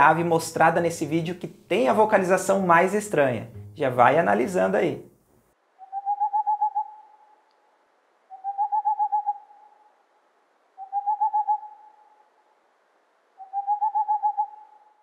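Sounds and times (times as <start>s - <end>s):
owl hooting in rapid bursts: 5.8s - 7.4s, 8.3s - 10.0s, 10.7s - 12.4s, 13.3s - 15.0s.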